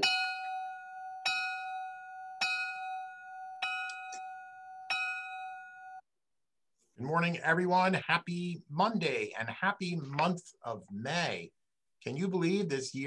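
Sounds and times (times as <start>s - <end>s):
bell ringing: 0.0s - 6.0s.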